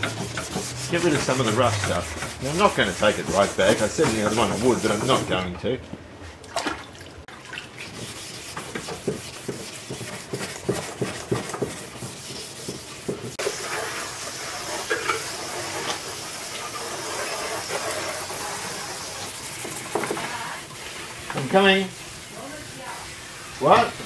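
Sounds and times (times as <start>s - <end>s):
hand sanding strokes: 0.0s - 5.4s, 7.8s - 23.9s
hose spraying water: 13.4s - 24.0s.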